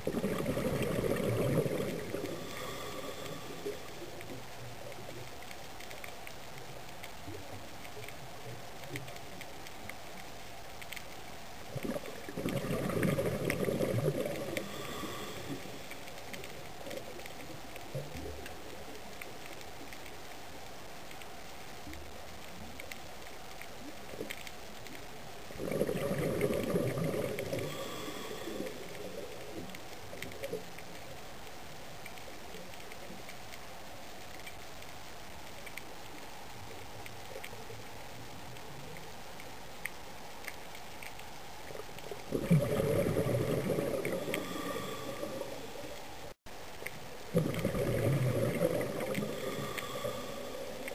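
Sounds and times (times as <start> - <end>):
gurgling bubbles: 0.0 - 4.4, 11.7 - 15.9, 25.6 - 29.2, 42.2 - 46.0, 47.3 - 50.9
underwater hiss: 0.0 - 5.0, 11.8 - 17.6, 25.6 - 30.6, 41.7 - 46.4, 47.3 - 50.9
faint clicks: 0.0 - 50.9.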